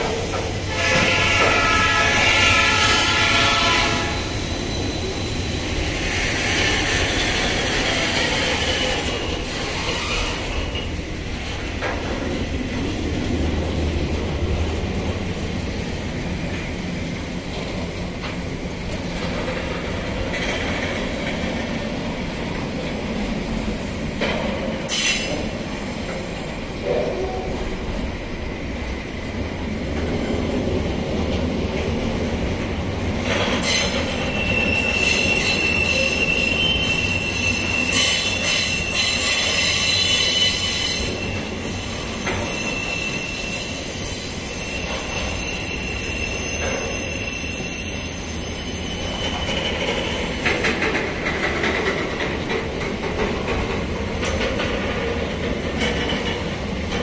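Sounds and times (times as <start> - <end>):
train wheels rumbling on rail: 0.0 - 57.0
wheel squeal: 3.8 - 10.9, 33.6 - 50.9.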